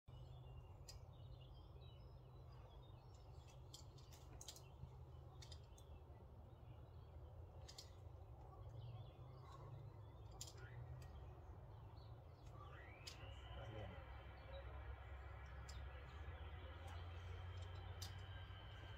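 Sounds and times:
low steady rumble: 0.1 - 18.9
faint bird chirps: 4.5 - 18.9.

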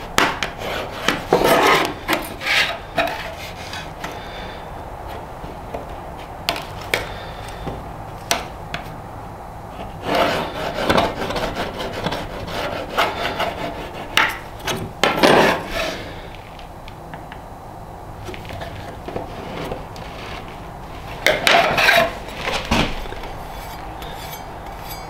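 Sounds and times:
pencil scratching on metal: 23.4 - 25.0.

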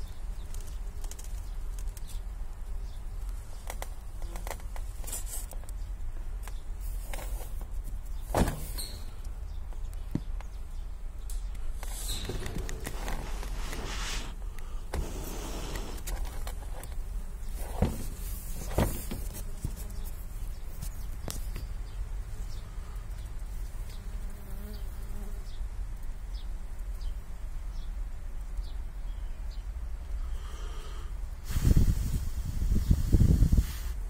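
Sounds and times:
rustle: 0.0 - 34.0
bees buzzing: 11.9 - 20.6.

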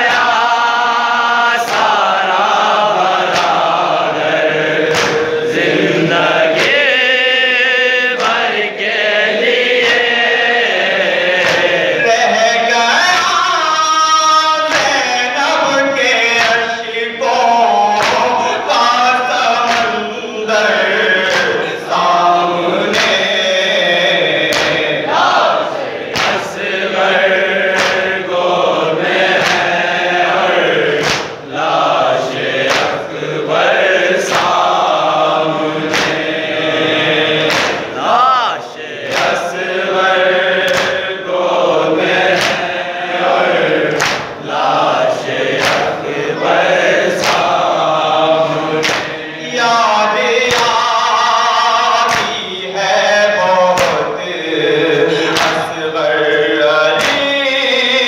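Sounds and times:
men chanting a lament: 0.0 - 58.0
hands slapping chests: 1.6 - 2.2, 3.2 - 4.0, 4.8 - 5.6, 6.6 - 7.0, 9.8 - 10.2, 11.4 - 11.9, 18.0 - 18.4, 19.6 - 20.1, 21.2 - 21.8, 22.8 - 23.3, 24.4 - 26.7, 27.7 - 28.3, 29.3 - 29.8, 30.9 - 31.5, 32.5 - 33.1, 34.2 - 35.1, 35.8 - 39.5, 40.6 - 41.1, 42.0 - 42.7, 43.8 - 44.4, 45.3 - 46.0, 47.0 - 47.7, 48.8 - 49.2, 50.4 - 50.8, 52.0 - 52.4, 53.7 - 54.1, 55.2 - 55.7, 57.0 - 57.3.

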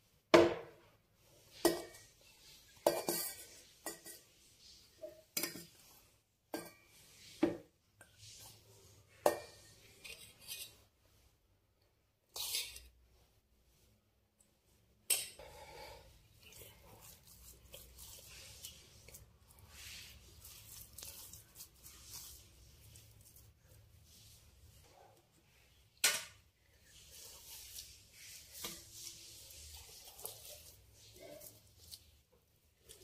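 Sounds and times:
rice squishing rustle: 15.8 - 26.0, 26.7 - 33.0.

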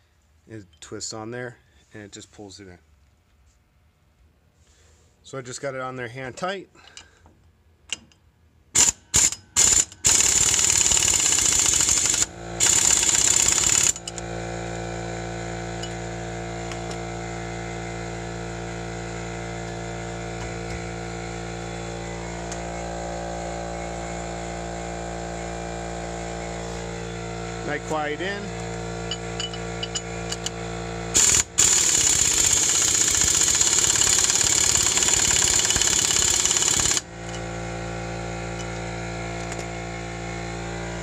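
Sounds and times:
power tool spinning lug nut: 8.8 - 41.0
steady mechanical hum: 13.9 - 31.9.

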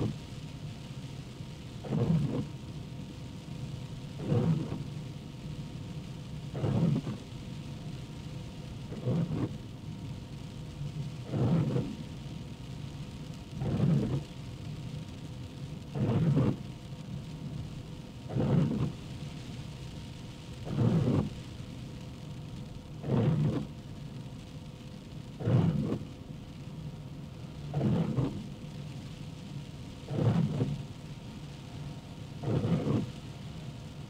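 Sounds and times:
rain and road noise hiss: 0.0 - 34.0
windshield wipers swishing: 4.2 - 4.8, 6.6 - 7.2, 16.0 - 16.6, 18.3 - 18.9, 20.7 - 21.3, 23.0 - 23.7, 25.4 - 26.1, 27.7 - 28.5, 30.1 - 30.8, 32.4 - 33.3.

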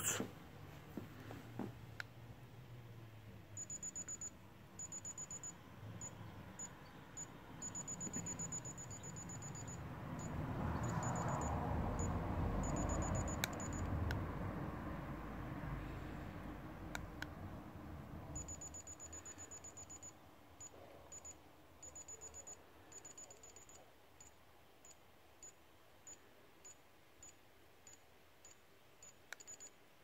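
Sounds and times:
thermometer beeping: 3.6 - 14.1, 18.3 - 29.8.

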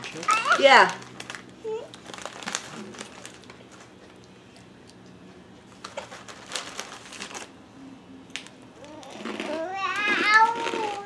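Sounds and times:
packaging crinkling and clicking: 0.1 - 4.2, 5.7 - 7.5, 8.3 - 11.0.

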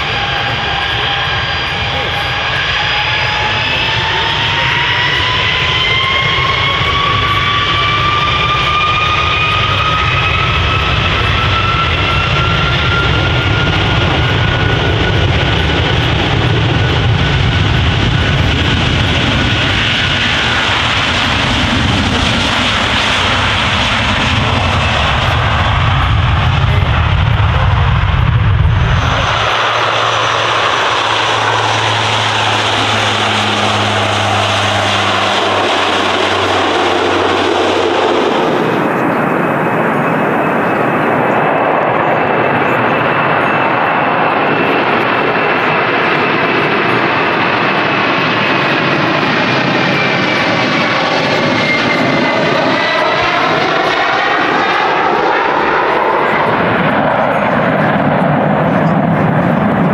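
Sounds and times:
jet engines spooling up: 0.0 - 59.9
turboprop engine drone: 0.0 - 59.9
loud low rumble: 13.0 - 41.2.

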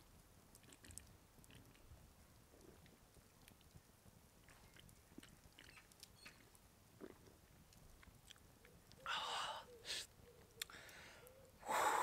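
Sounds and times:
breathy exhale: 10.7 - 12.0.

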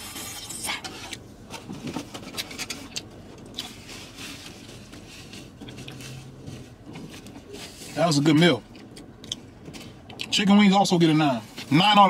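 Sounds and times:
person chewing: 8.7 - 10.3.

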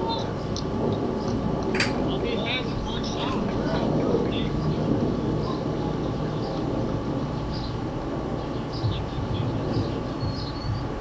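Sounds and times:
distant shouts: 0.0 - 0.6
crowd voices rumbling: 0.0 - 11.0.

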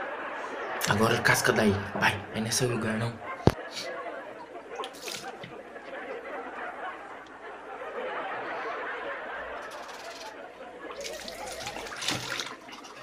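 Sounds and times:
tap water running into sink: 11.0 - 13.0.

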